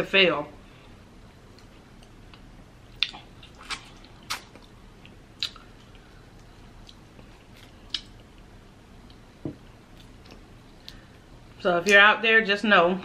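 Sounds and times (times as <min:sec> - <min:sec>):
wet chewing smacks: 0:03.0 - 0:08.2.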